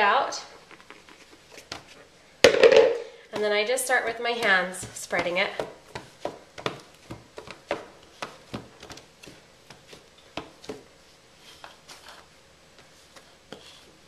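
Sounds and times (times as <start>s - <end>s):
hands tapping dough on metal pan: 2.4s - 3.5s, 4.4s - 10.9s.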